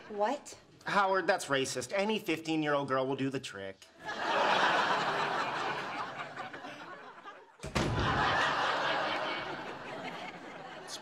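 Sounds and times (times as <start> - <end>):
studio audience laughing: 4.0 - 11.0.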